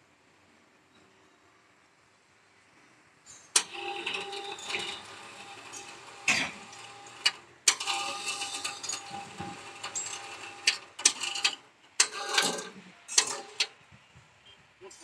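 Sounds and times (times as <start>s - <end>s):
winch motor running: 3.6s - 13.7s.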